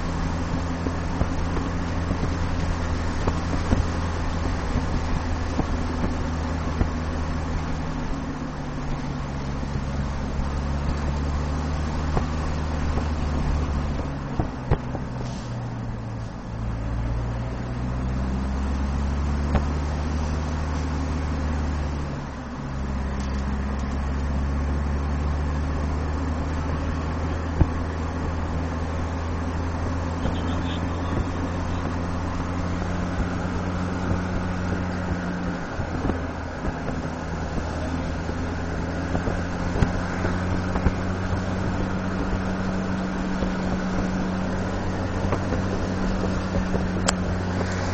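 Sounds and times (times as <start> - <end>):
car engine drone: 0.0 - 47.9.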